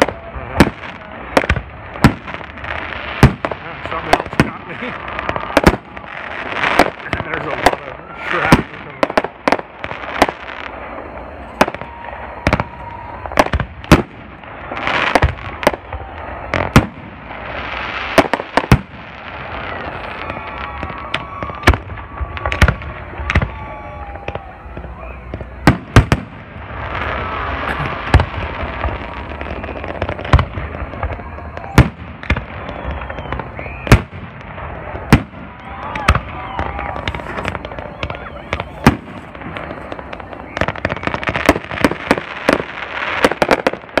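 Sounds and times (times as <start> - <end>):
fireworks bursting with loud bangs: 0.0 - 44.0.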